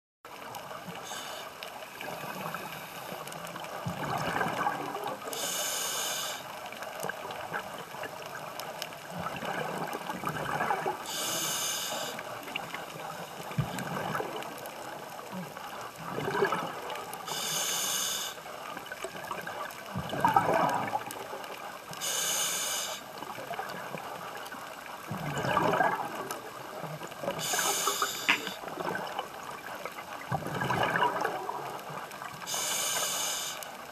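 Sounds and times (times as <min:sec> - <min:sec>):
hissing regulator inhale: 0:00.9 - 0:03.4, 0:05.3 - 0:06.5, 0:11.0 - 0:12.4, 0:17.3 - 0:18.5, 0:22.0 - 0:23.1, 0:27.4 - 0:28.6, 0:32.5 - 0:33.7
bubbling exhale: 0:27.3 - 0:29.1.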